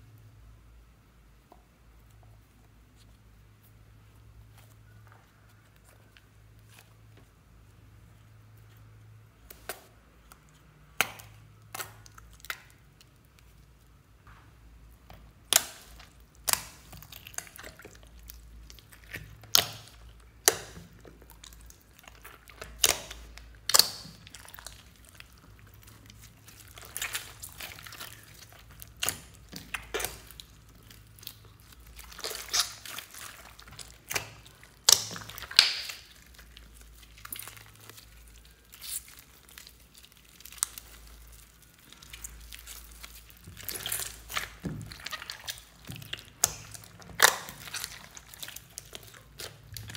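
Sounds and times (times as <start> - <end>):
hands squishing slime: 1.9 - 49.9
slime popping and squelching: 9.4 - 13.6, 14.9 - 49.9.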